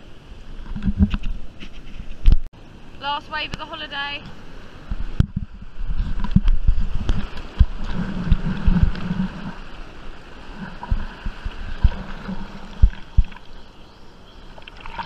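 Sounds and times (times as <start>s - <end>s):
whitewater rushing and fizzing: 2.6s - 15.0s
water slapping against camera: 3.4s - 9.7s, 10.5s - 13.6s, 14.6s - 15.0s.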